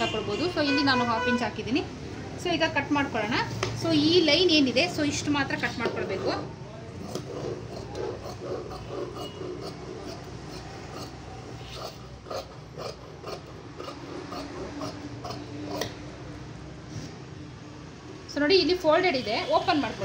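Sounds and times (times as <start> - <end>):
scissors snipping cloth: 7.0 - 11.1, 11.7 - 16.0.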